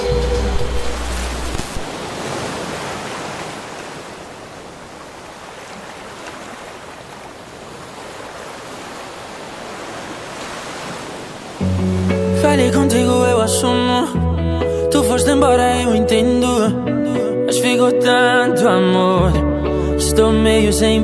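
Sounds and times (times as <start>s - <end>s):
steady rushing noise: 0.0s - 2.2s.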